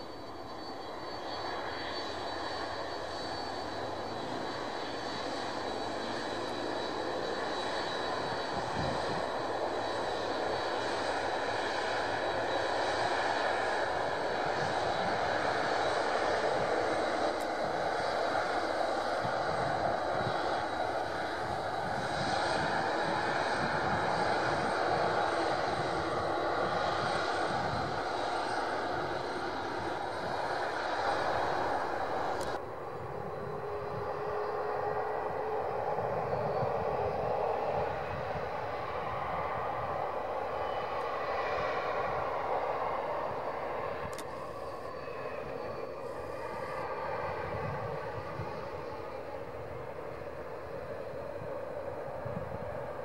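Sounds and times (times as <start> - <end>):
jet engines idling: 0.0 - 53.0.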